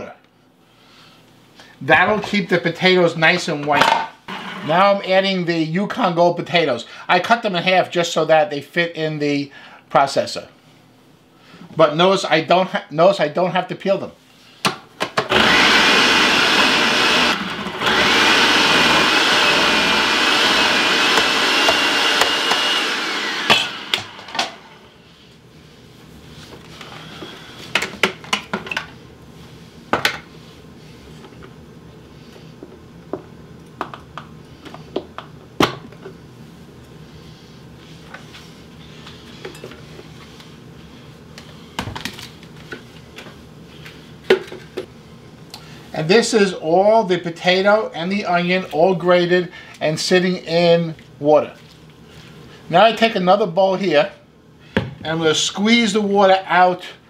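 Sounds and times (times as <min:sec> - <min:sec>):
food processor motor whining: 0:15.2 - 0:24.8.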